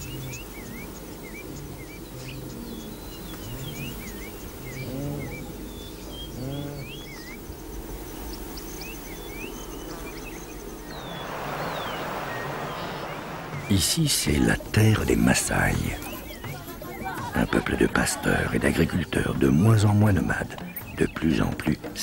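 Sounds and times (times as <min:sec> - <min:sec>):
birds chirping: 0:00.0 - 0:22.0
low animal calls: 0:01.3 - 0:07.4
rushing hiss: 0:10.9 - 0:15.9.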